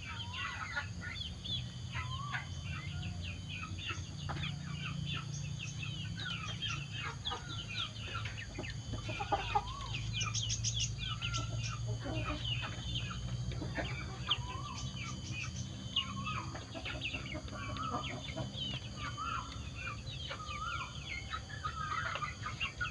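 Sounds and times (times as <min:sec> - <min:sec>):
chicks peeping and chirping: 0:00.0 - 0:22.9
steady low hum: 0:00.0 - 0:22.9
warbling bird calls: 0:00.0 - 0:22.9.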